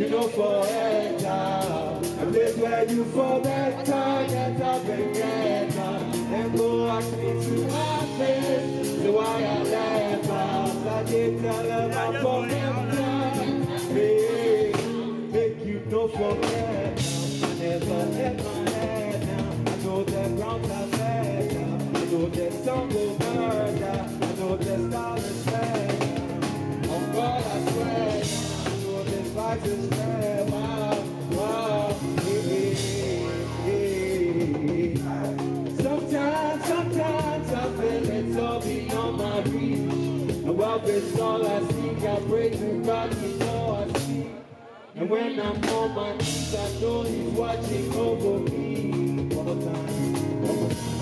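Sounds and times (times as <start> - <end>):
live band playing a groove: 0.0 - 44.5, 45.4 - 51.0
man singing: 0.0 - 51.0.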